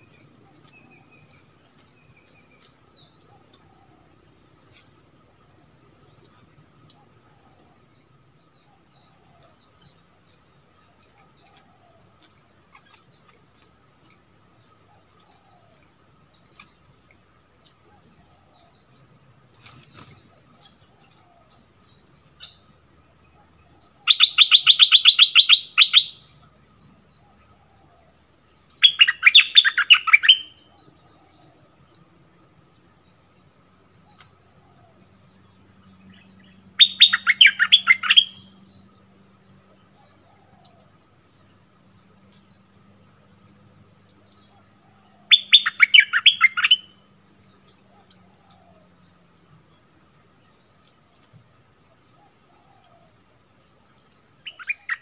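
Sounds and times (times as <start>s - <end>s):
faint bird chirps: 0.0s - 55.0s
bird song scratchy notes: 24.0s - 26.4s, 28.6s - 30.7s, 36.0s - 39.5s, 45.3s - 48.6s, 54.0s - 55.0s.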